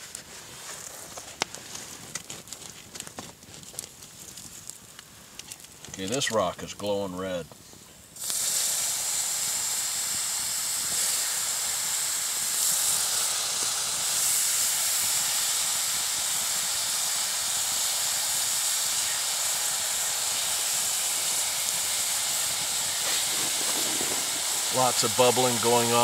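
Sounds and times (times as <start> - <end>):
hot rock hissing in water: 8.1 - 26.0.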